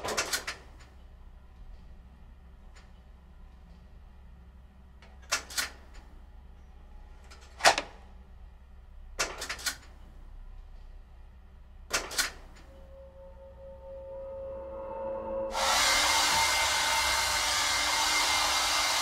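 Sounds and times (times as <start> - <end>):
low steady hum: 9.9 - 18.0
steady tone: 12.6 - 19.0.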